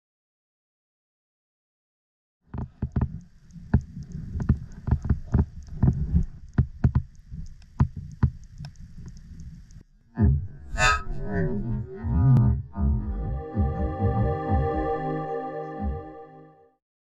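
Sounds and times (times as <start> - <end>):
faint fast ticking: 2.8 - 9.8.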